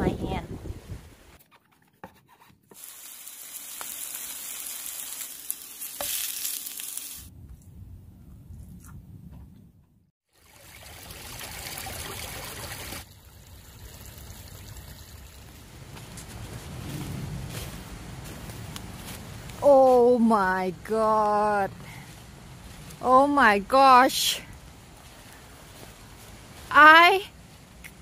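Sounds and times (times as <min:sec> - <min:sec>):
mushrooms sizzling in a pan: 0:02.8 - 0:07.3
stream water running over rocks: 0:10.3 - 0:16.4
low rumbling: 0:15.1 - 0:19.6.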